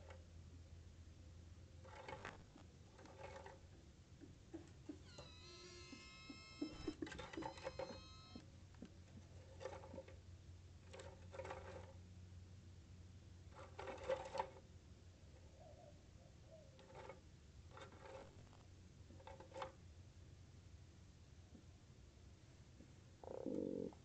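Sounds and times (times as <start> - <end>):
high whining animal call: 5.0 - 8.4.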